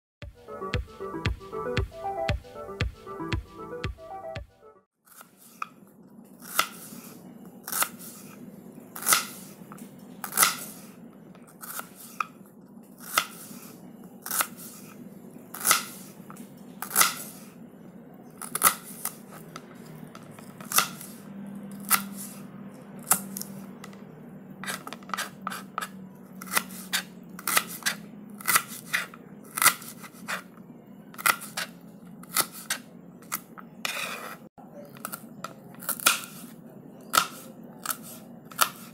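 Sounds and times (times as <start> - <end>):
knife slicing an onion: 5.1 - 5.8, 6.4 - 8.4, 9.0 - 12.4, 13.0 - 17.6, 18.4 - 23.7, 24.6 - 30.6, 31.2 - 38.9.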